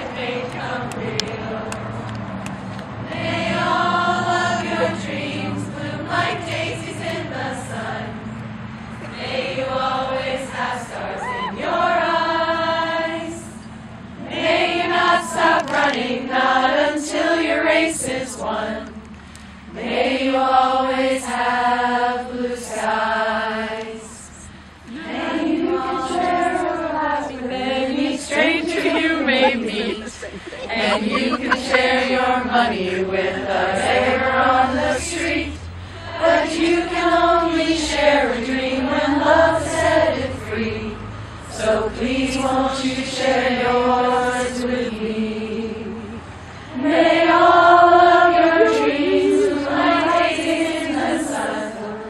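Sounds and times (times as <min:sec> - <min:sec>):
choir singing slowly: 0:00.0 - 0:52.0
singers breathing: 0:19.1 - 0:19.7, 0:24.3 - 0:24.9, 0:35.6 - 0:36.2, 0:46.4 - 0:46.8.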